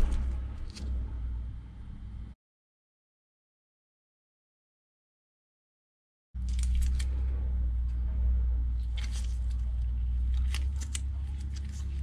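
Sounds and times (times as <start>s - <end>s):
workshop low hum: 0.0s - 2.4s, 6.4s - 12.0s.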